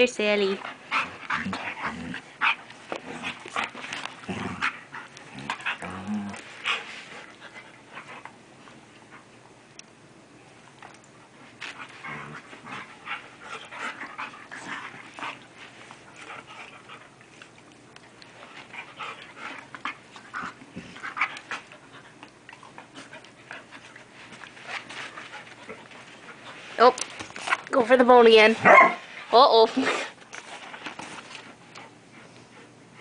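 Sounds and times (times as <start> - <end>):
dogs panting and huffing: 0.4 - 9.3, 11.3 - 33.0.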